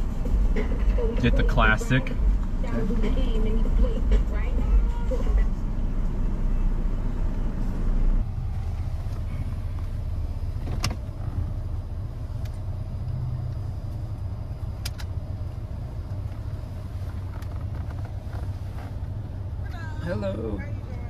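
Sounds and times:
car engine idling: 0.0s - 21.0s.

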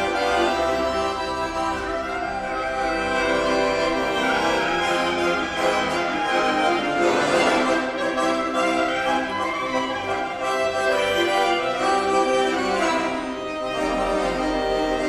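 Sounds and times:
accordion chords: 0.0s - 15.0s
clarinet melody: 0.0s - 15.0s.

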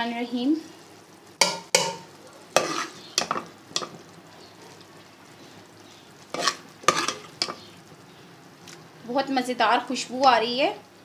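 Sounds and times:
spoon scraping a pot: 1.4s - 4.0s, 6.3s - 7.7s
macaroni stirred in a pot: 1.4s - 7.9s.

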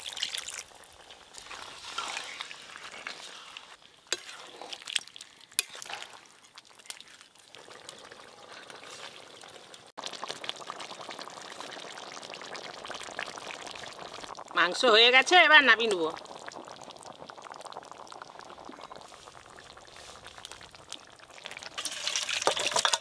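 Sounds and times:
curry sizzling in a pan: 0.0s - 23.0s
metal spatula scraping pan: 1.5s - 4.8s.

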